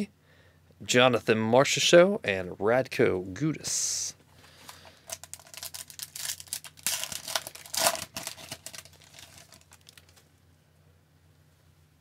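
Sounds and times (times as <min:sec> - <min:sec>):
foil wrapper crinkling and tearing: 0:04.6 - 0:10.2.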